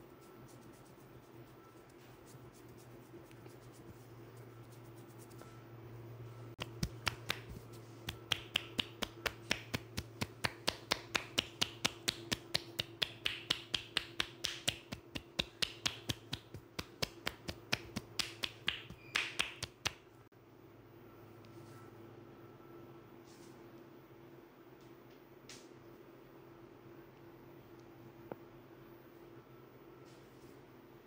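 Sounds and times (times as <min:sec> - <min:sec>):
hands clapping on body: 0:06.6 - 0:20.0.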